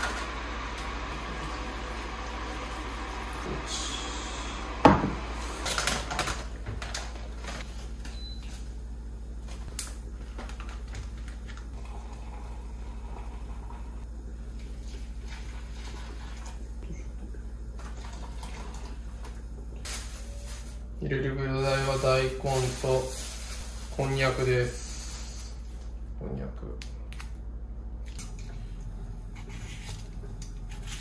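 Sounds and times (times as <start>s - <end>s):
low hum: 0.0s - 5.8s.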